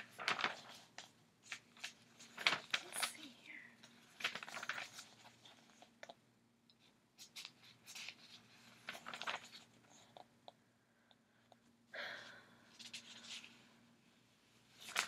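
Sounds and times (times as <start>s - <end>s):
pages rustling and flicking: 0.0s - 6.1s, 7.2s - 10.3s, 12.8s - 13.6s, 14.7s - 15.0s.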